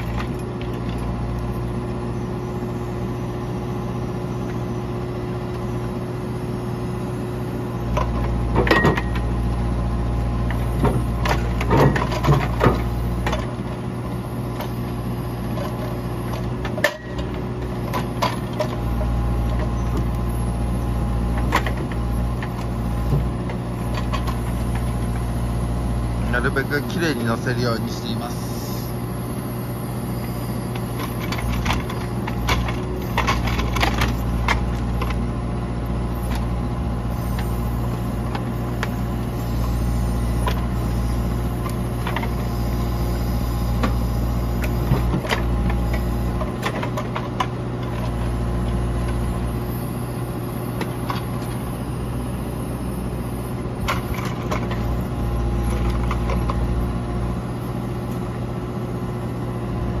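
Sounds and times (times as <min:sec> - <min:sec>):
diesel engine running under load: 0:00.0 - 1:00.0.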